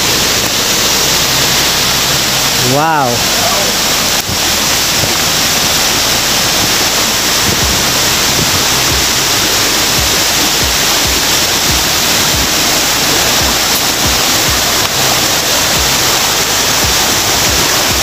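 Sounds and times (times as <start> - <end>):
creek water rushing: 0.0 - 18.0
low thumps: 4.2 - 18.0.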